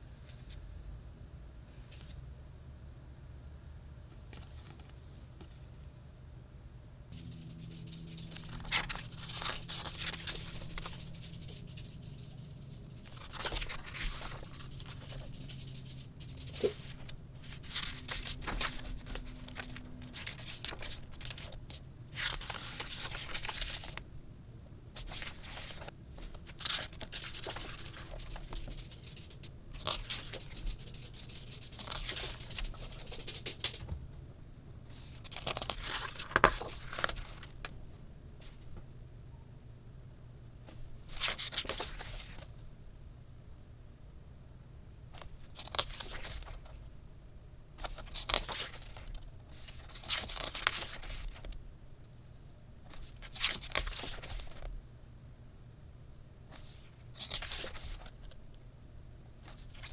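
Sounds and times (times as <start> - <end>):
book pages turning: 7.2 - 12.3, 13.0 - 24.0, 25.0 - 33.8, 34.9 - 37.6, 41.1 - 42.5, 45.2 - 46.7, 47.8 - 51.5, 52.9 - 54.7, 56.5 - 58.4, 59.4 - 59.9.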